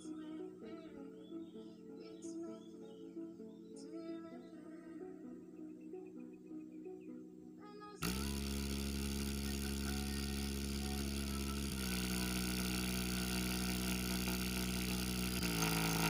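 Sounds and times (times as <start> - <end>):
deep buzzing bass drone: 8.0 - 16.0.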